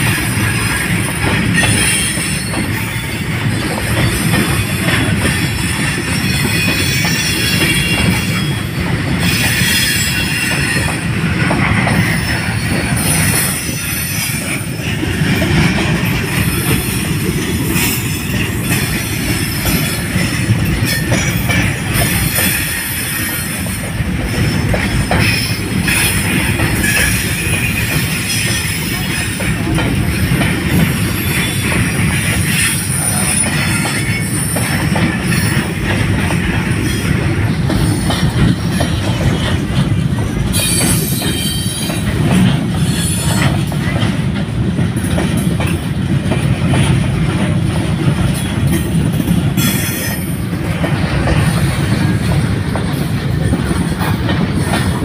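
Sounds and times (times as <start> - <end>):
clacks over rail joints: 0.0 - 55.0
train wheels rumbling on rails: 0.0 - 55.0
wheel squeal: 0.1 - 3.2, 4.1 - 11.1, 40.5 - 42.1.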